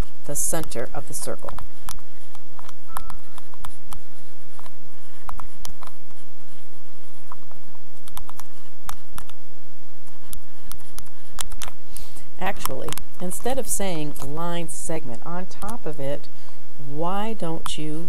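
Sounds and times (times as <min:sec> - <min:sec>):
stylus tapping on a tablet: 0:01.4 - 0:04.0.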